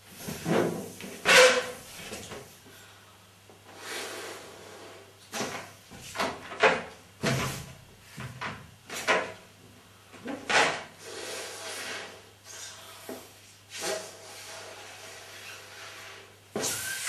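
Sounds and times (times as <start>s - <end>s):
balloon squeaking and rubbing: 16.6s - 17.0s.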